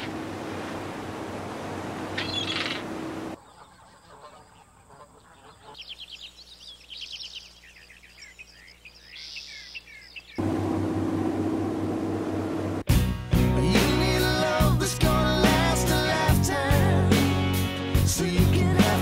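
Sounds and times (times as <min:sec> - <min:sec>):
low hum with rushing noise: 0:00.0 - 0:03.4, 0:10.4 - 0:12.9
small birds singing: 0:02.1 - 0:10.4.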